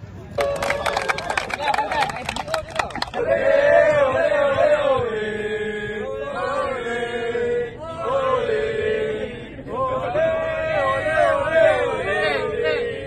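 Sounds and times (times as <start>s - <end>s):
football supporters chanting: 0.4s - 13.0s.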